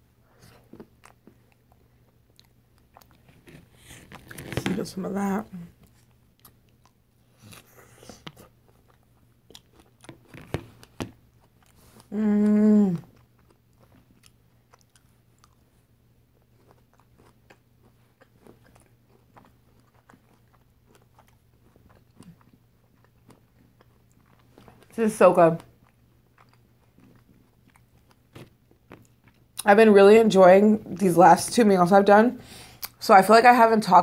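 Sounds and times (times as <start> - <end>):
chewing: 0.3 - 4.6, 5.6 - 25.0, 25.6 - 29.7
person humming mmm: 12.1 - 13.1.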